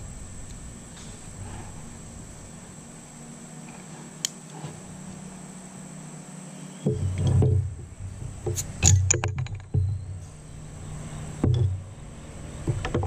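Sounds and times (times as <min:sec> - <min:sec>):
heavy thumps: 0:06.9 - 0:10.2, 0:11.4 - 0:12.0.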